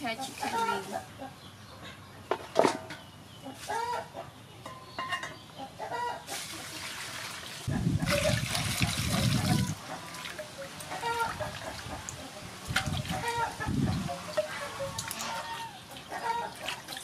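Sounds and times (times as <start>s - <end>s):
hens clucking: 0.0s - 6.8s, 7.6s - 17.0s
water splashing in a metal bowl: 6.3s - 17.0s.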